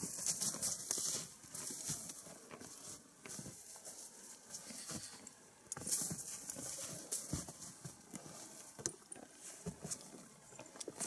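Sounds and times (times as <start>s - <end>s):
footsteps crunching in snow: 0.0s - 5.2s, 5.8s - 8.8s
rustling: 0.0s - 11.0s.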